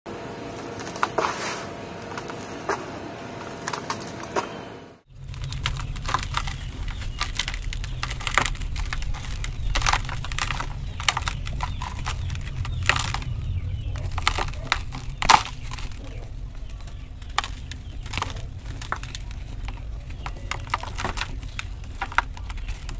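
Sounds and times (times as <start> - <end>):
low rumble: 5.0 - 22.9
hands crushing dry blocks: 5.1 - 22.9.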